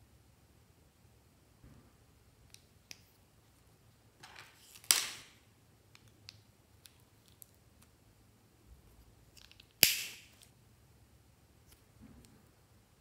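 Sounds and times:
sharp plastic snap: 9.4 - 10.5.

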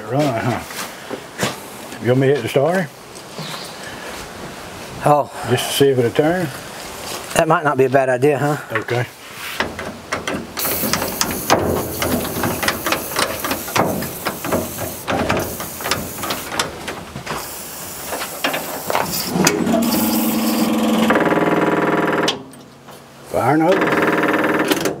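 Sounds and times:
metal clicks and clanks: 9.6 - 17.0
electric starter motor buzzing: 18.4 - 22.5.

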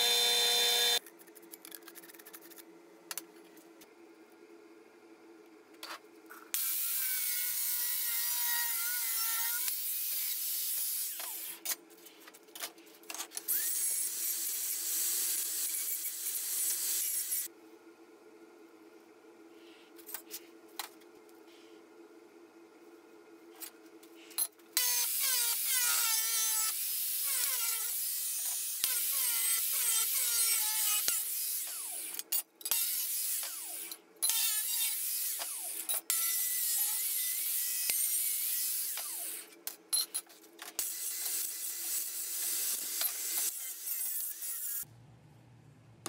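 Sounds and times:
angle grinder cutting sheet metal: 0.0 - 1.0, 13.5 - 17.5, 24.8 - 39.4, 40.8 - 44.8.

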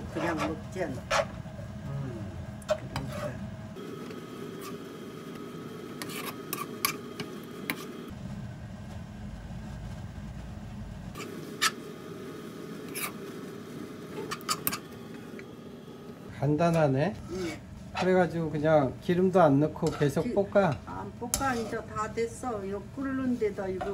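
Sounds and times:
spoons stirring in sauce: 19.6 - 21.9.

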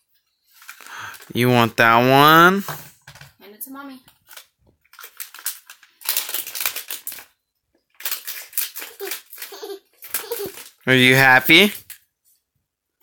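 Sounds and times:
packaging crinkling and tearing: 0.6 - 1.3, 4.2 - 10.8.

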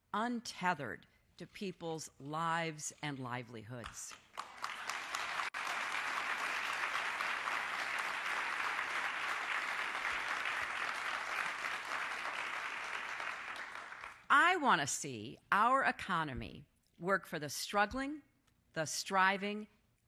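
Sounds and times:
audience applauding: 4.3 - 14.2.

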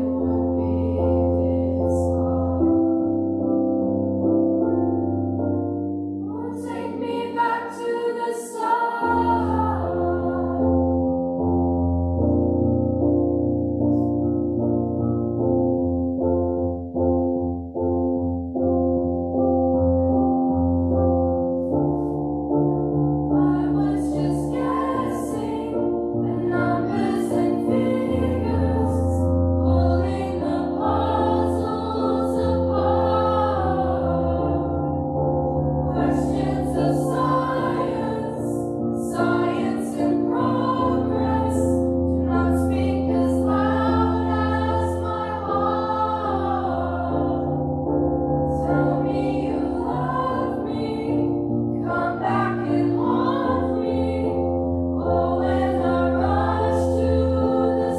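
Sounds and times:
choir singing: 0.0 - 3.3, 5.5 - 11.0, 23.2 - 57.9.

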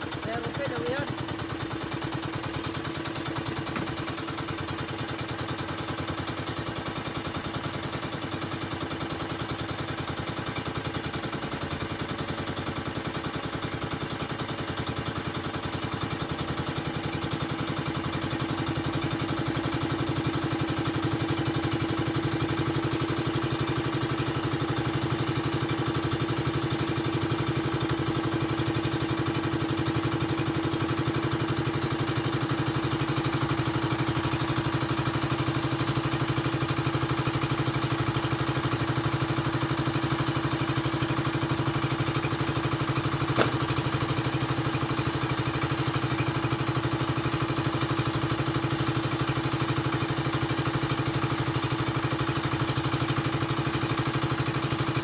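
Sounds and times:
small engine running: 0.0 - 55.0.

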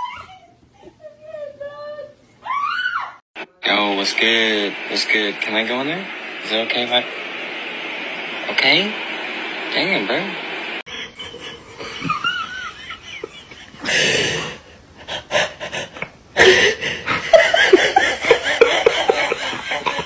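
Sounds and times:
person laughing hard: 11.0 - 20.0.

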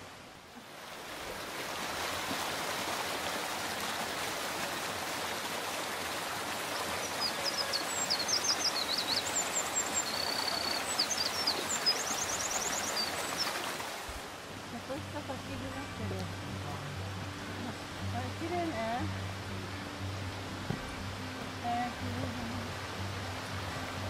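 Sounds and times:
mountain stream over rocks: 0.0 - 24.0
small birds singing: 6.4 - 13.9.

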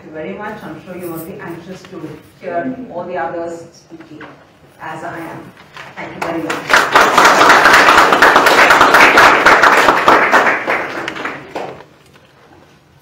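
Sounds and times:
audience applauding: 6.4 - 11.9.

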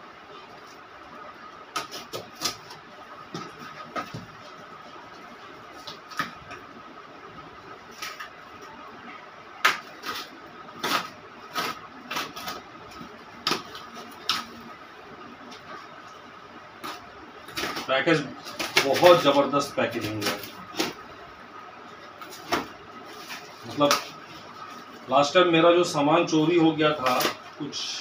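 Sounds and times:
faint steady hum: 0.0 - 28.0
tape and packaging crinkling: 16.8 - 21.1, 21.9 - 25.1.

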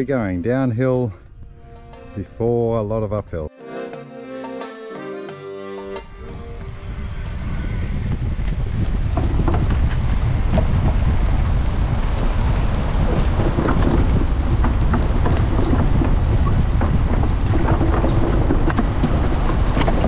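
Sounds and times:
wind rumbling on microphone: 0.0 - 3.1, 6.1 - 20.0
tyres knocking on wooden planks: 13.2 - 20.0.

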